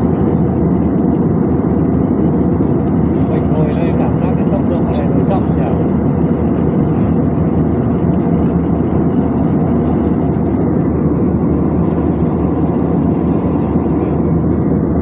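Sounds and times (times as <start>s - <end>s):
jet airliner cabin noise: 0.0s - 15.0s.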